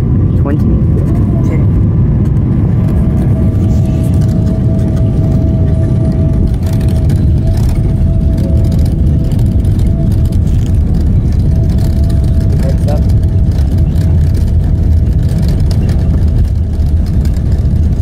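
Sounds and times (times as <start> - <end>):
aircraft cabin rumble: 0.0 - 18.0
thin steady whine: 0.0 - 18.0.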